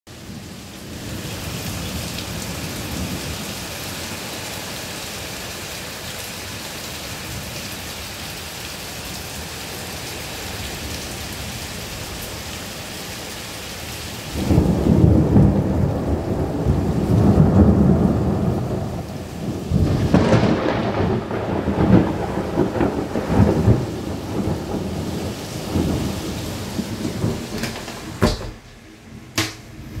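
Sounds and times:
heavy rain hissing: 0.1 - 30.0
thunder rumbling: 14.3 - 30.0.

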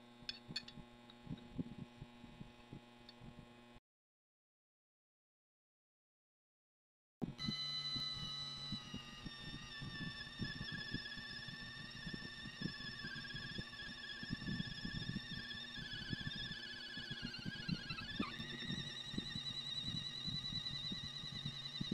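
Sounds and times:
drill press motor whining: 7.3 - 21.9.

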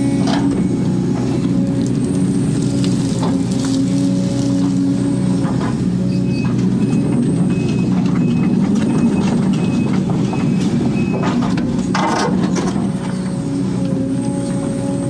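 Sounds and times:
excavator diesel engine: 0.0 - 15.0.

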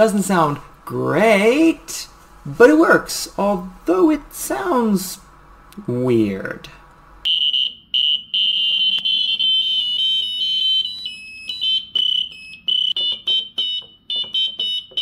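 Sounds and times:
piezo buzzer beeping short notes: 7.3 - 15.0.

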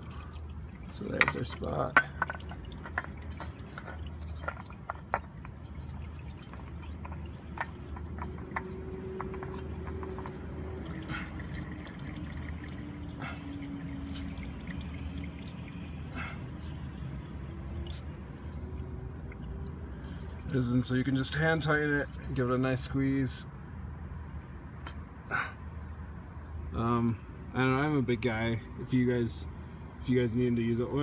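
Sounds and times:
oil dripping into a pan: 0.0 - 20.5.

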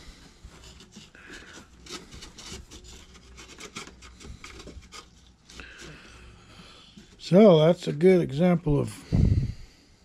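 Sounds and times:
sandpaper scraping wood: 0.0 - 6.0.

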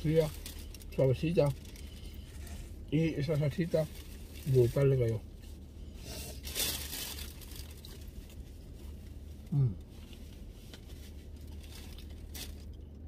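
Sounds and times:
low steady hum: 0.0 - 13.0
person humming mm: 9.5 - 9.8.

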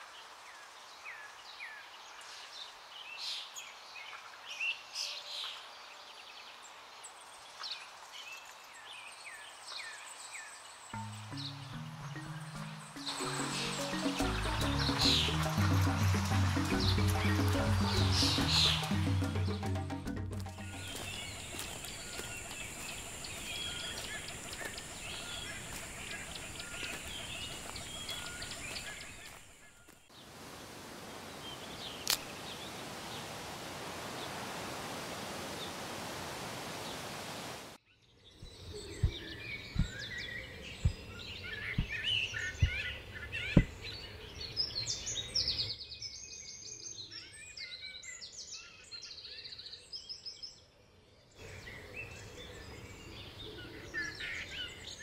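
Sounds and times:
small birds chirping: 0.5 - 19.8, 20.4 - 34.6, 37.9 - 55.0
sharp low thuds: 38.4 - 42.9.

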